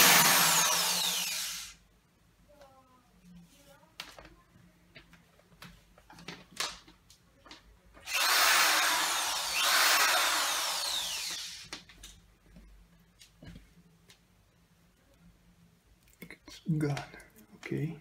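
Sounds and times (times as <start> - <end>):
power drill boring through glass: 0.0 - 1.8, 8.0 - 11.7.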